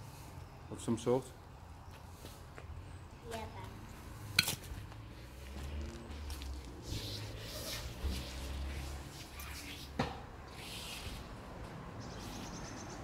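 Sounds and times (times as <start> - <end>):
rope rustling through gloves: 4.3 - 11.4.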